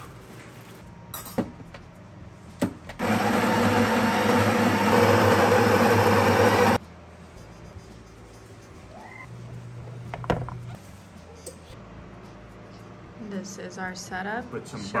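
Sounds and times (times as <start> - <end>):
coffee grinder grinding beans: 3.0 - 6.8.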